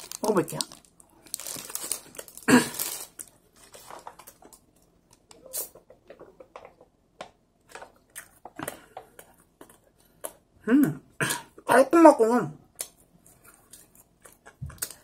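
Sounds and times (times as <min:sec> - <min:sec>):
biting and chewing bun: 0:12.8 - 0:15.0.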